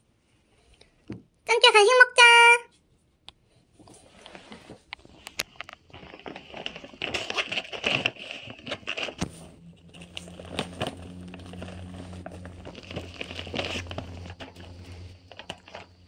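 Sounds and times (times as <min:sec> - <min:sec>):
plastic snack bag crinkling: 0:05.1 - 0:16.0.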